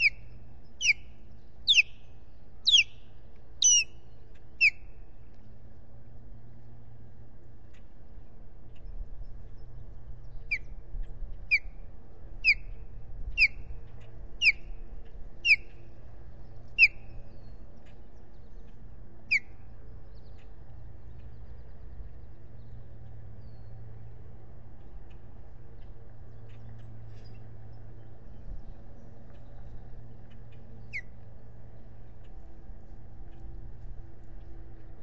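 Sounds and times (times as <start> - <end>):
osprey whistled calls: 0.0 - 1.1, 1.7 - 2.0, 2.6 - 3.0, 3.6 - 4.0, 4.6 - 4.8, 14.4 - 14.7, 15.5 - 15.7, 16.8 - 17.0.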